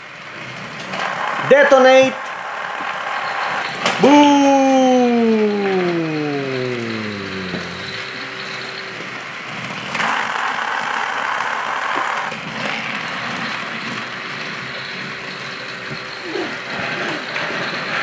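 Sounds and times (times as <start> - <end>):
toy train motor whirring: 6.3 - 9.0, 9.8 - 18.0.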